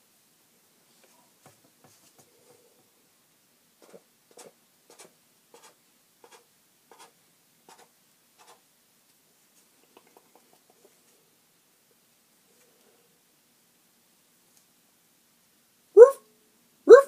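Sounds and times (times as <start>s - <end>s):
plastic toy scratchy rubs: 3.8s - 8.6s.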